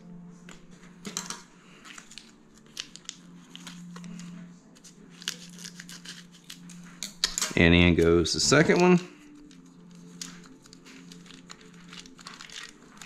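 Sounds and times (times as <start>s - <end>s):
foil wrapper crinkling and tearing: 1.8s - 6.8s, 9.2s - 13.0s.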